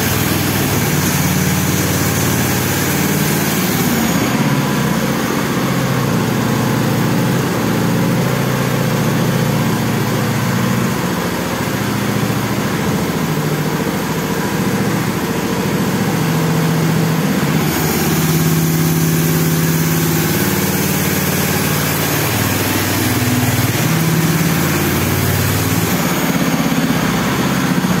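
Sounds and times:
go-kart engine running: 0.0 - 28.0.

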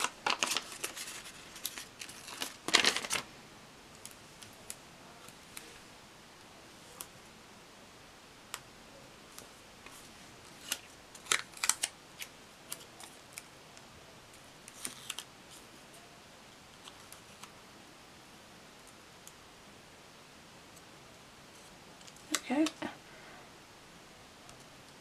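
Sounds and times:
paper stickers crackling: 0.0 - 3.2, 9.9 - 13.5, 14.7 - 15.3.

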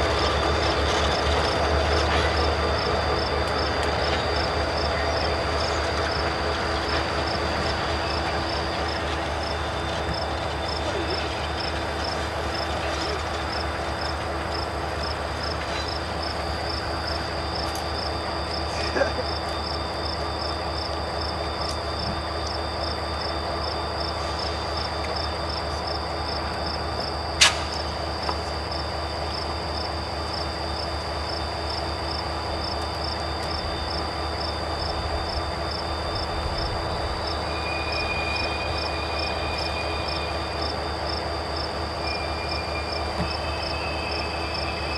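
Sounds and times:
crickets chirping: 0.0 - 44.9
diesel locomotive engine drone: 0.0 - 44.9
train wheels squealing: 0.0 - 44.9
sharp click: 27.4 - 27.8.

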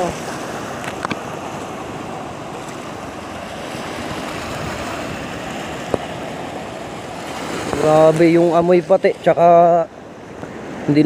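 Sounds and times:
waves breaking on pebbles: 0.0 - 8.7.

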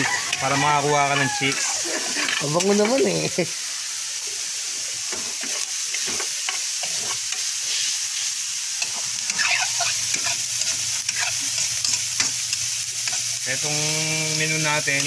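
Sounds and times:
metal spatula scraping a pan: 0.0 - 2.8, 5.1 - 8.0, 8.8 - 13.3
meat sizzling in a frying pan: 0.0 - 15.0.

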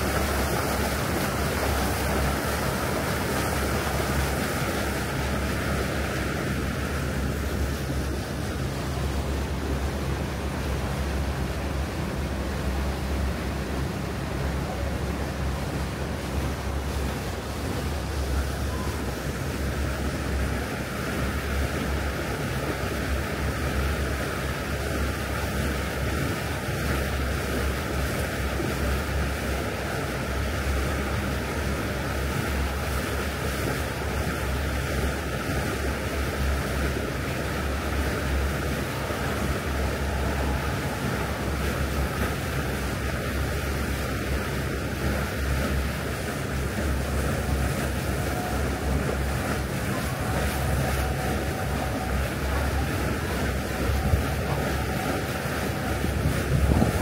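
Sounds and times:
boat engine rumble: 0.0 - 57.0
wind and water rushing: 0.0 - 57.0.

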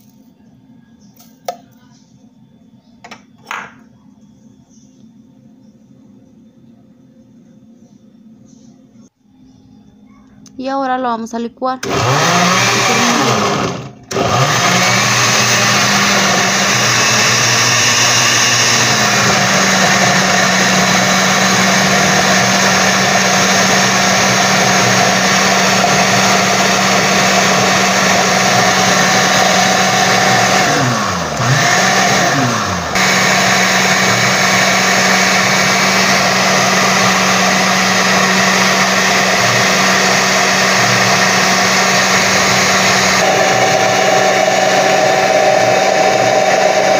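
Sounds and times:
blender motor running: 11.8 - 46.9.

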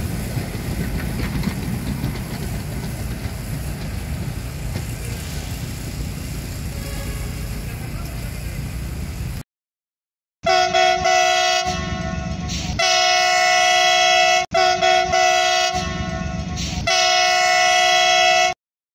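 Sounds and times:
train air horn blasts: 6.6 - 7.7, 10.4 - 18.6.

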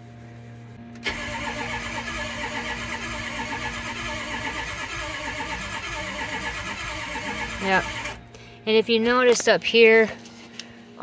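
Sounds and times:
diesel engine cranking on starter: 0.9 - 8.2.

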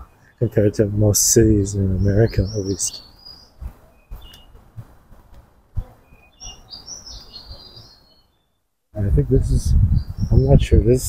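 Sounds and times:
small birds chirping: 0.0 - 11.0
wind buffeting microphone: 0.8 - 7.9, 9.0 - 11.0.

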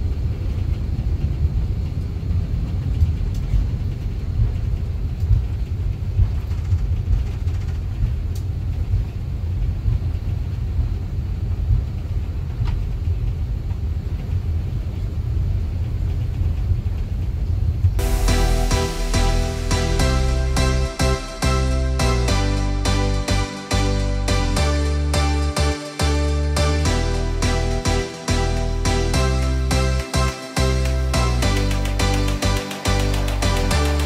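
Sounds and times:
low rumble of aircraft cabin: 0.0 - 18.0.

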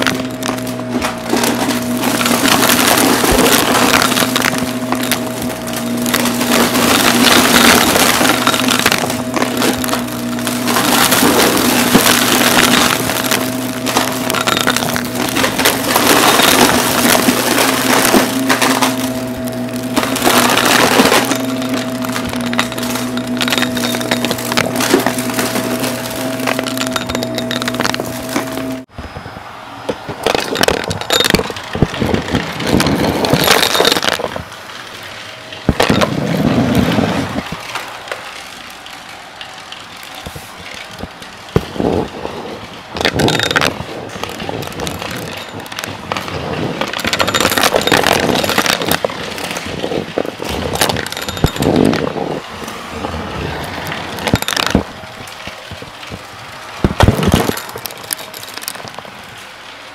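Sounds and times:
debris crackling and rattling: 0.0 - 28.9, 29.9 - 59.9
vacuum cleaner running: 0.0 - 29.6.

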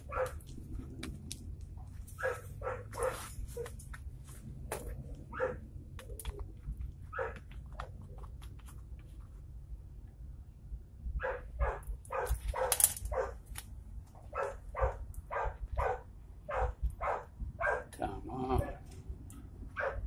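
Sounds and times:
dog barking: 0.0 - 0.4, 2.2 - 3.7, 5.3 - 5.6, 7.1 - 7.4, 11.2 - 13.4, 14.3 - 18.0, 19.8 - 20.0.

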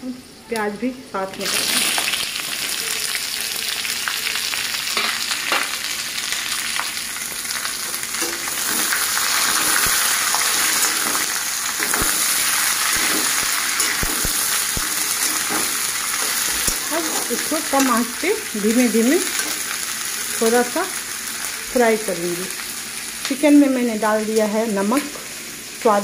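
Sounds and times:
onions sizzling in oil: 0.0 - 26.0
spatula scraping a metal pan: 8.2 - 17.9.

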